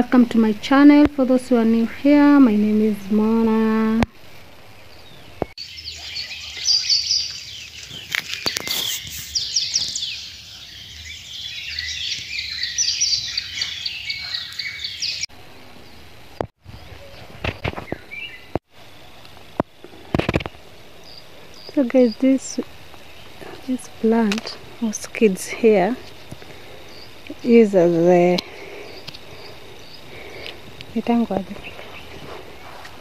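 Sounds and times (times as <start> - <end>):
birds chirping and singing: 4.7 - 18.6, 20.4 - 32.7.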